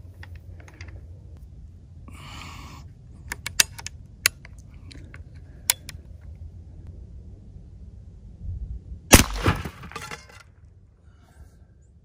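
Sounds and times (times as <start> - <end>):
metallic clicks of air rifle: 3.2 - 6.1.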